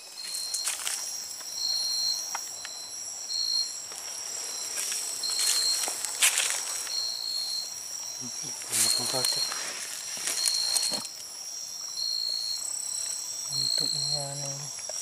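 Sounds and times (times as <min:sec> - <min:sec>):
insects trilling: 0:00.0 - 0:15.0
pulsing high insect tone: 0:00.0 - 0:15.0
footsteps in dry leaves: 0:03.9 - 0:07.0, 0:08.6 - 0:11.0.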